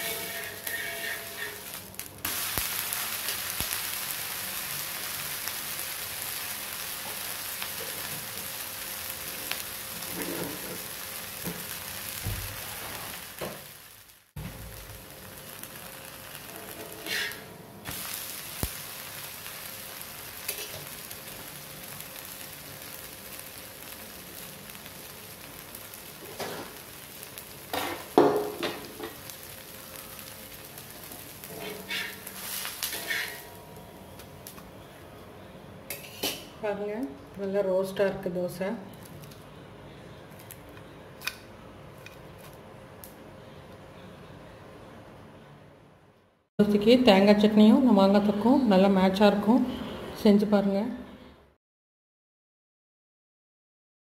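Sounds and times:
spatula scraping griddle: 0.0 - 1.8, 16.7 - 17.5, 31.4 - 33.5
dosa sizzling on a hot griddle: 0.0 - 33.6.

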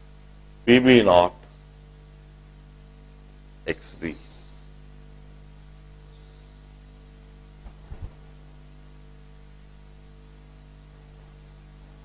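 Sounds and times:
low electrical hum: 0.0 - 12.0
low thumps: 7.6 - 8.4.

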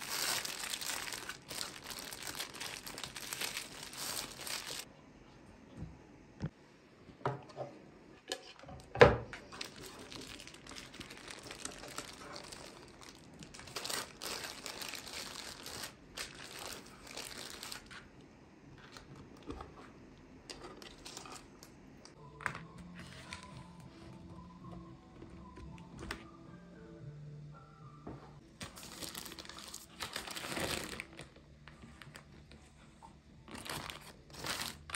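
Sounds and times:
baking paper crinkling: 0.0 - 4.9, 9.5 - 18.1, 28.6 - 31.3, 33.5 - 34.9.

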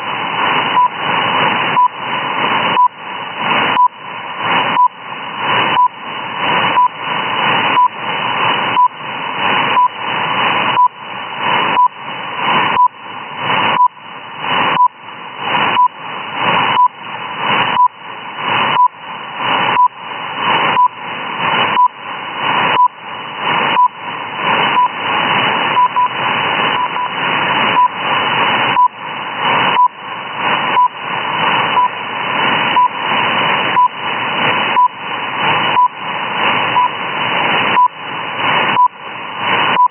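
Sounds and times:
static hiss: 0.0 - 39.9
short time signal beeps: 5.8 - 6.0, 9.8 - 10.0, 11.7 - 12.0, 16.8 - 17.0, 17.8 - 18.0, 18.8 - 19.0, 19.8 - 20.0, 20.8 - 21.0, 23.7 - 24.0, 24.7 - 25.0, 25.8 - 26.2, 26.8 - 27.2, 28.7 - 29.0, 29.7 - 30.0, 30.7 - 31.0, 31.8 - 32.0, 32.8 - 33.0, 33.8 - 34.0, 34.8 - 35.0, 35.8 - 36.0, 36.7 - 37.0, 37.7 - 38.0, 38.8 - 39.0.

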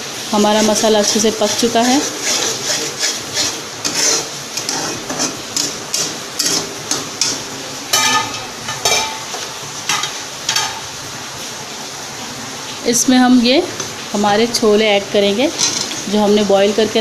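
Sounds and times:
light sizzle of frying: 0.0 - 17.0
spatula scraping pan: 0.5 - 10.9
spatula clanking against pan: 2.2 - 10.9.

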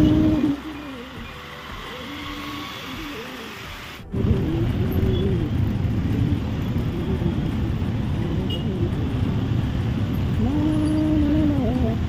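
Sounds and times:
motorcycle traffic: 0.0 - 12.0
road noise: 0.0 - 12.0
loud low rumble: 4.0 - 11.8.

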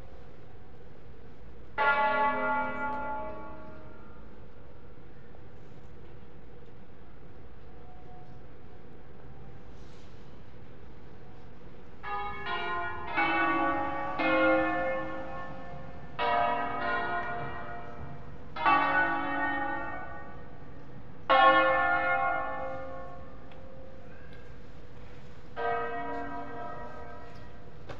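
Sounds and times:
church bells ringing: 1.8 - 4.6, 12.0 - 24.6, 25.6 - 27.9.

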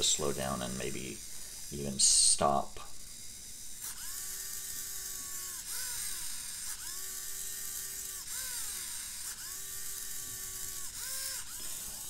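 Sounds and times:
servo motor whine: 0.0 - 12.0.

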